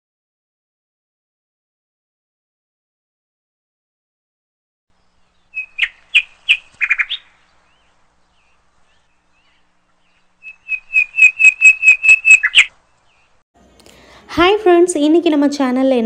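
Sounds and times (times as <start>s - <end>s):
bird chirping: 4.9s - 13.4s.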